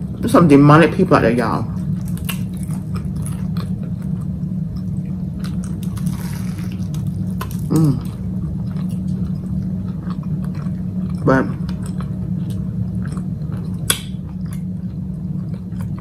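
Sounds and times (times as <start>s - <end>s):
low room hum: 0.0s - 16.0s
wet chewing: 1.8s - 16.0s
person humming: 7.7s - 8.1s.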